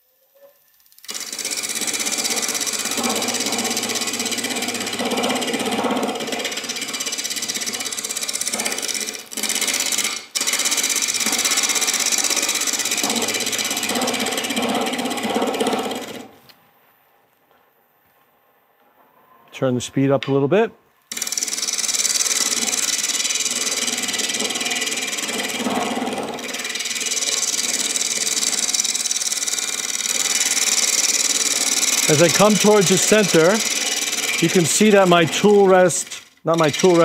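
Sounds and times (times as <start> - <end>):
lathe tool chattering on wood: 1.0 - 16.3, 21.1 - 37.0.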